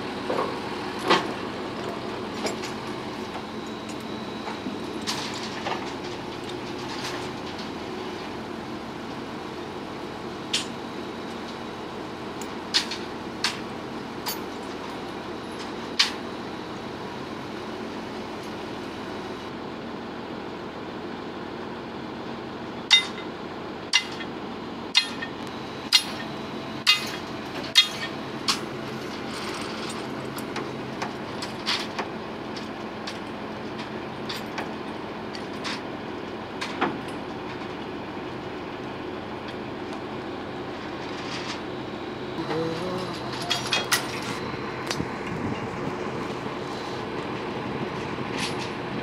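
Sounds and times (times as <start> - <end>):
crane engine running: 0.0 - 49.0
metallic clanks of steel: 22.9 - 23.2, 23.9 - 24.3, 24.9 - 30.6, 42.8 - 44.4.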